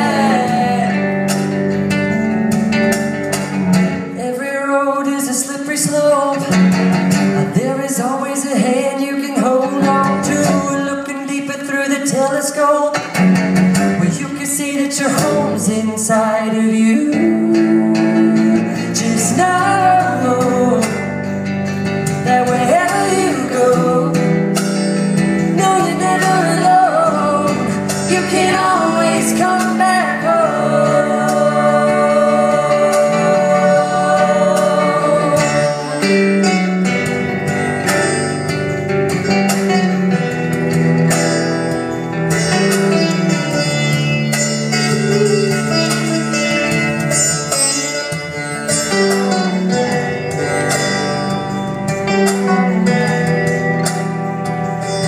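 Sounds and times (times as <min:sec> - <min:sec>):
man singing: 0:00.0 - 0:01.4, 0:04.1 - 0:06.7, 0:07.3 - 0:13.2, 0:13.8 - 0:21.4, 0:22.2 - 0:24.6, 0:25.4 - 0:37.9, 0:48.8 - 0:54.2
keyboard: 0:00.0 - 0:55.0
strummed acoustic guitar: 0:00.0 - 0:55.0
sitar: 0:41.3 - 0:51.9.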